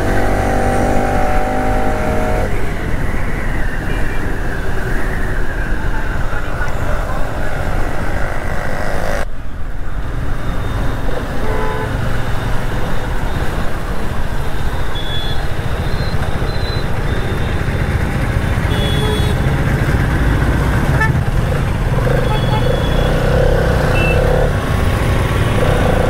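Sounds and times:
road noise: 0:00.0 - 0:26.0
vehicle horn toots: 0:18.6 - 0:19.4, 0:22.1 - 0:24.5.

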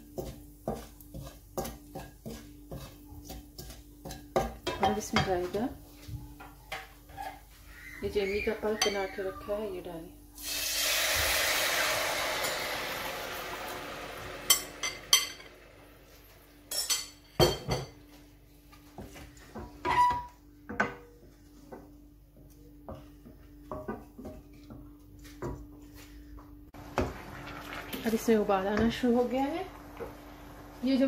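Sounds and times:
utensils clinking against pan: 0:00.2 - 0:05.6, 0:14.4 - 0:15.6, 0:16.7 - 0:18.0
pulp sizzling in hot oil: 0:10.4 - 0:16.4, 0:26.8 - 0:28.4.

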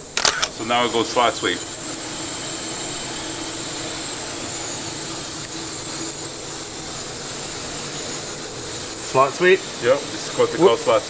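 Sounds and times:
faint machinery hum: 0:00.0 - 0:11.0
machinery airflow hiss: 0:00.0 - 0:11.0.

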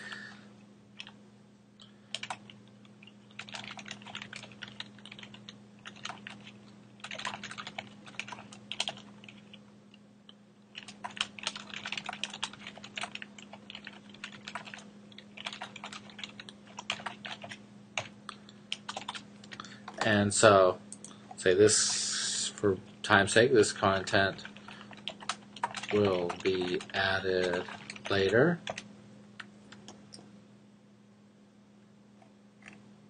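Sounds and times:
typing on computer keyboard: 0:02.1 - 0:09.6, 0:10.8 - 0:18.1, 0:18.8 - 0:20.1, 0:24.5 - 0:28.9.

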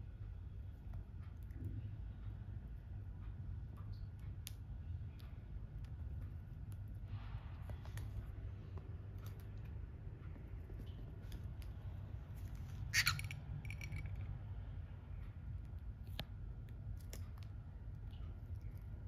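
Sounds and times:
low steady hum: 0:00.0 - 0:19.0
cockatiels clicking and tapping: 0:12.5 - 0:14.3.

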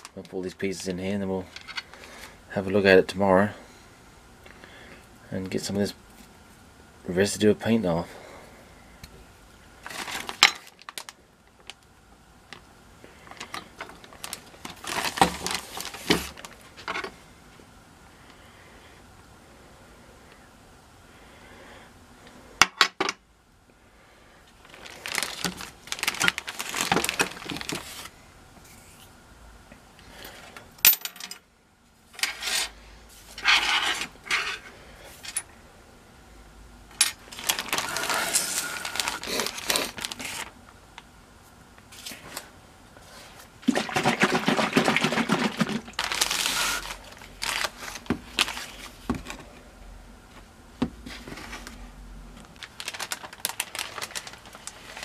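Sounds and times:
plastic bag rustling: 0:09.8 - 0:11.8, 0:13.2 - 0:16.9, 0:24.6 - 0:29.0, 0:37.1 - 0:40.6, 0:41.9 - 0:49.6, 0:51.0 - 0:55.0.

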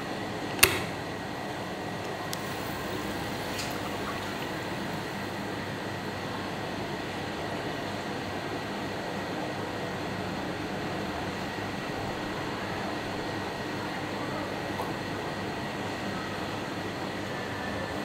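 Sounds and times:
steady machine hum: 0:00.0 - 0:18.0
sharp click: 0:00.6 - 0:01.0.

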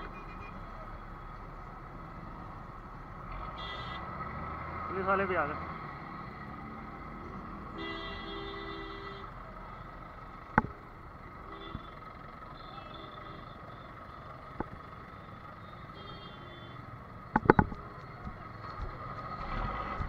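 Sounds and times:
traffic noise: 0:00.0 - 0:20.0
vehicle horn: 0:03.6 - 0:04.1, 0:07.7 - 0:09.3, 0:11.4 - 0:12.0, 0:15.9 - 0:16.8
sharp knocks: 0:17.4 - 0:17.8.

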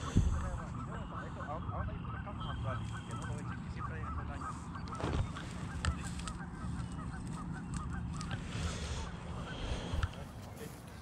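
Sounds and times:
wind rumble on microphone: 0:00.0 - 0:00.7
geese honking: 0:00.0 - 0:11.0.

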